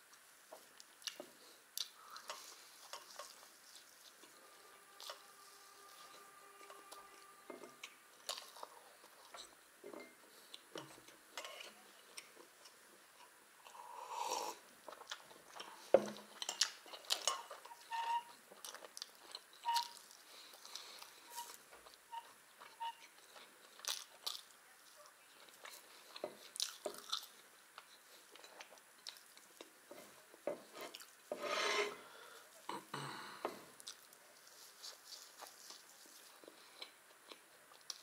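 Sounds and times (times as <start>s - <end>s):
person chewing and swallowing: 0.6s - 3.4s, 12.0s - 17.8s, 25.4s - 31.2s, 33.4s - 34.2s.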